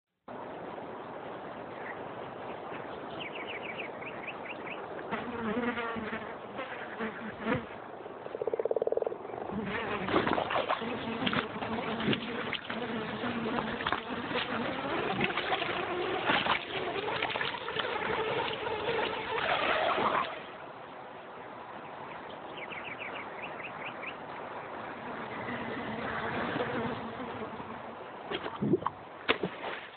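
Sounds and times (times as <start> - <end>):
fly buzzing: 5.1 - 20.5, 24.9 - 28.4
water splashing: 8.2 - 20.7, 28.2 - 29.9.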